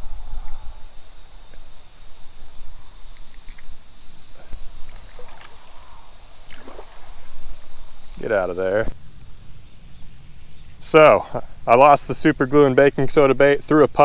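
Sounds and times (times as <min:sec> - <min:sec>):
insects chirring: 0:00.0 - 0:14.0.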